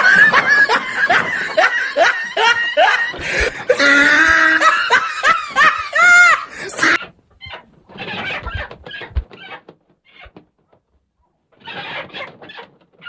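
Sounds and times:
men laughing heartily: 0:00.0 - 0:07.0.

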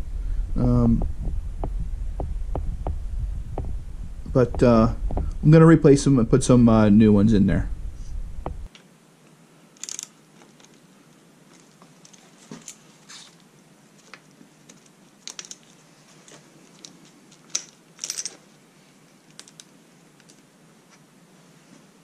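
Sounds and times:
metallic clicks of hand tools: 0:09.8 - 0:10.8.

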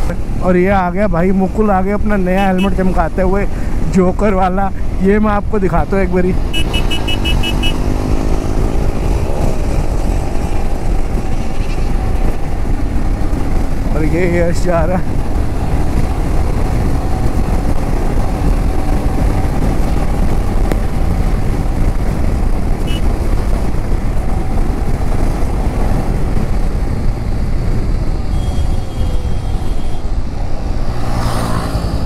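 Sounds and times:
wind and road noise: 0:00.0 - 0:32.0
motorcycle engine running: 0:06.4 - 0:14.4, 0:15.0 - 0:29.7.

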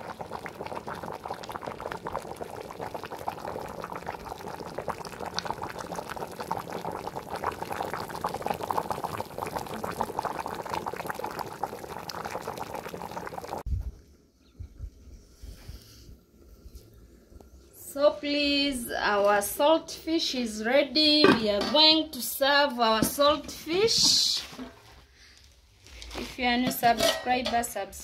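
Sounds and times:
soup boiling and bubbling: 0:00.0 - 0:13.7.

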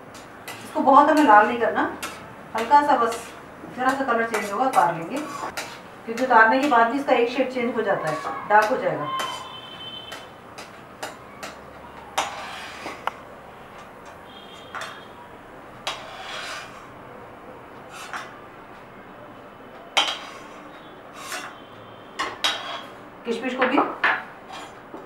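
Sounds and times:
spoon scraping a pan: 0:00.1 - 0:07.0, 0:08.0 - 0:11.6, 0:12.2 - 0:13.2, 0:13.8 - 0:15.1, 0:15.8 - 0:16.9, 0:17.9 - 0:18.4, 0:20.0 - 0:23.0, 0:24.5 - 0:24.8.

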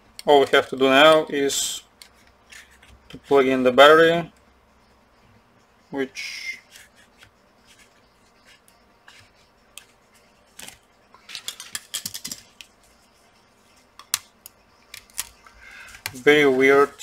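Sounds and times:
plastic clicks and rattling: 0:10.6 - 0:12.7.

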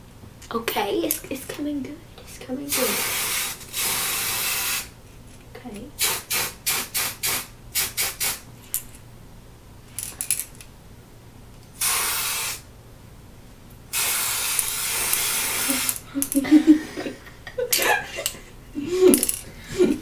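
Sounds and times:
aerosol spray: 0:02.7 - 0:04.9, 0:06.0 - 0:08.4, 0:11.8 - 0:12.7, 0:13.9 - 0:16.1.

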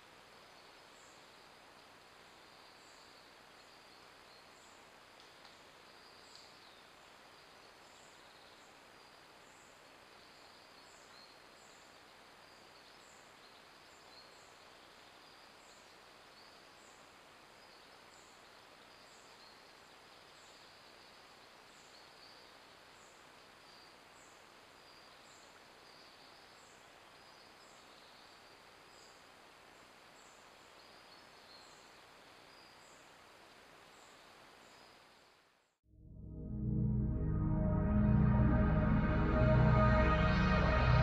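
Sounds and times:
faint microphone hiss: 0:00.0 - 0:35.8.

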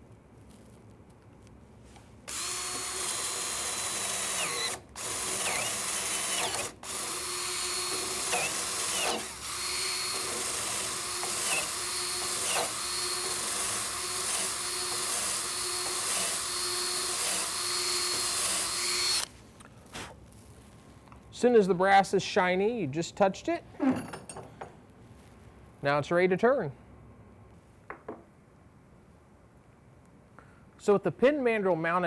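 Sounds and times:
cutter scraping wood: 0:02.3 - 0:19.3
drill whirring: 0:02.3 - 0:19.3.

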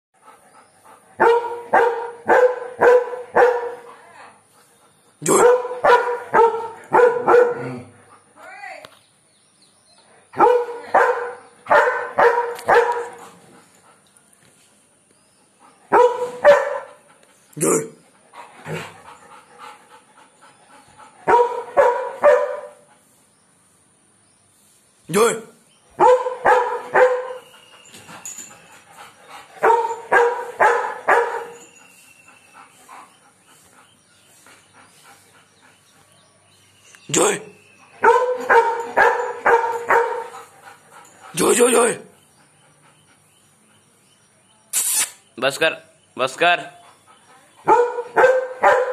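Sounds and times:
dog barking aggressively: 0:01.2 - 0:03.9, 0:05.3 - 0:07.9, 0:10.4 - 0:13.3, 0:15.9 - 0:17.0, 0:21.2 - 0:22.8, 0:26.0 - 0:27.4, 0:29.6 - 0:31.6, 0:38.0 - 0:40.5, 0:47.6 - 0:48.9.

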